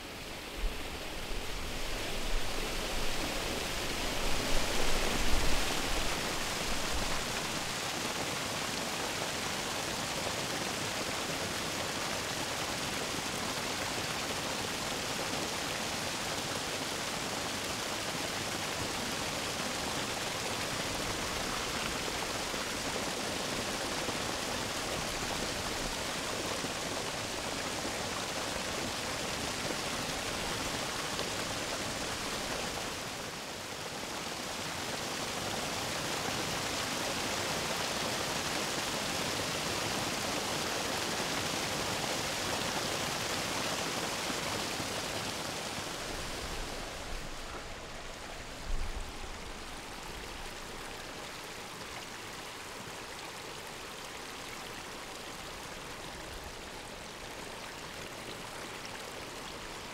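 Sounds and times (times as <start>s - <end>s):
waterfall rushing and splashing: 0.0s - 59.9s.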